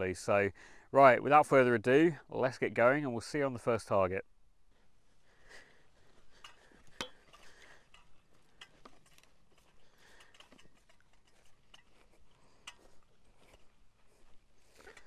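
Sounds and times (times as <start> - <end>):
footsteps through grass: 4.9 - 15.0
metal tools clicking and clinking: 6.4 - 13.0.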